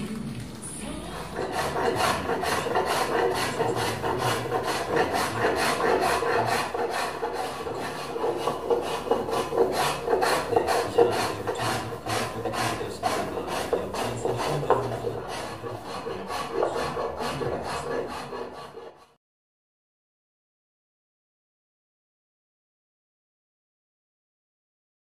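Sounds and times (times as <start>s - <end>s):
rasping strokes across wood: 0.9s - 19.2s.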